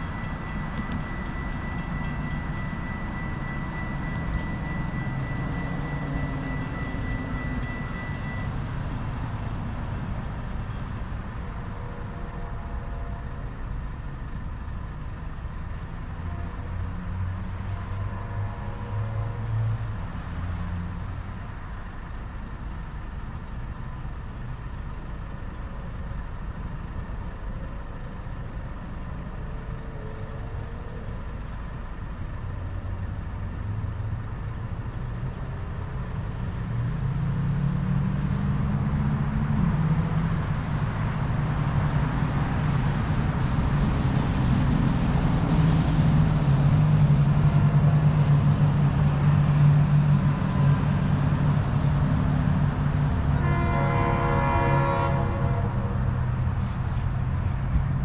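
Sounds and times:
cars and trucks driving past: 0.0s - 58.0s.

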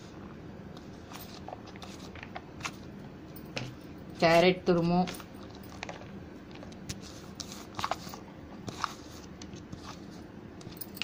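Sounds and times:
plastic dishes clicking and scraping: 5.2s - 10.0s.

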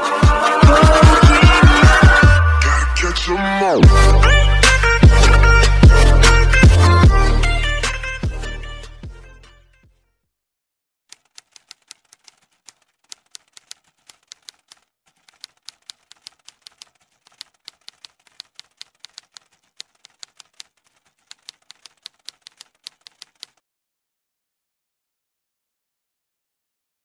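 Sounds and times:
typewriter key clicks: 11.1s - 23.6s.

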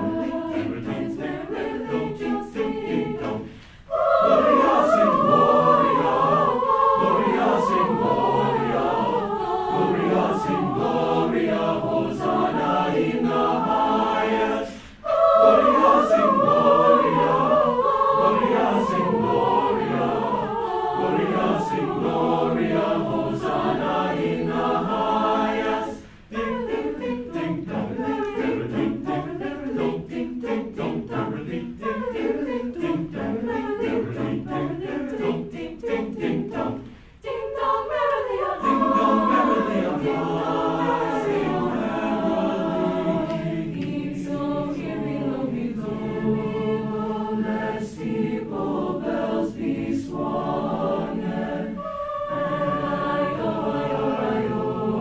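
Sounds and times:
choir singing: 0.0s - 55.0s.

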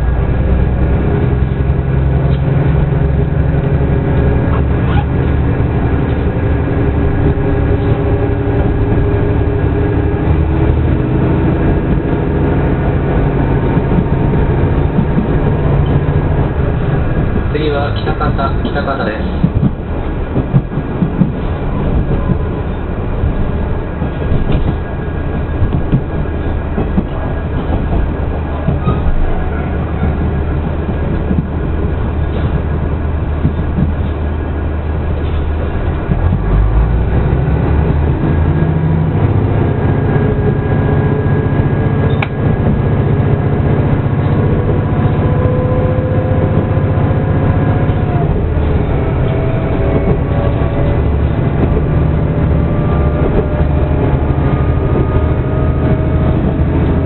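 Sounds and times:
train running rumble: 0.0s - 57.0s
wheels clicking over rail joints: 13.0s - 57.0s.

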